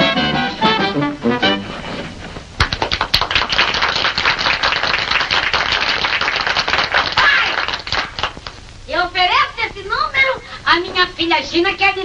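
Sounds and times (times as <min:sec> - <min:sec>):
song: 0:00.0 - 0:02.1
audience applauding: 0:02.6 - 0:08.6.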